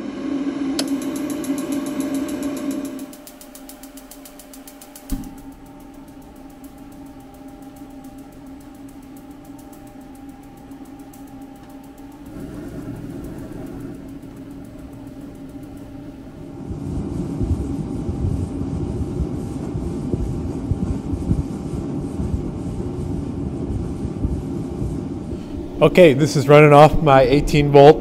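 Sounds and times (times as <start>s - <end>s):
heater fan humming and ticking: 0.0s - 28.0s
sharp click: 2.0s - 16.2s
burner rumbling: 4.9s - 28.0s.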